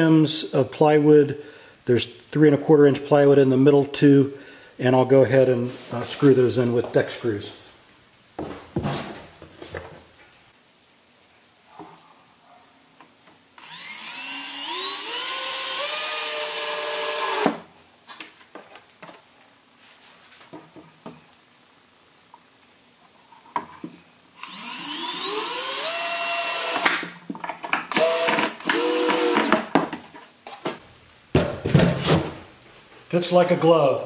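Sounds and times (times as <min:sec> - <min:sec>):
cordless drill driving screws: 0:13.6 - 0:17.6, 0:24.4 - 0:27.0, 0:27.9 - 0:29.7.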